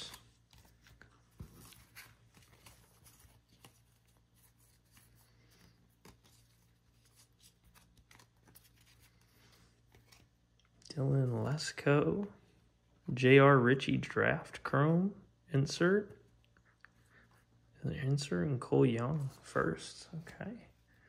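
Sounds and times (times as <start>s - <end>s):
cards being flipped: 0.0s - 10.8s.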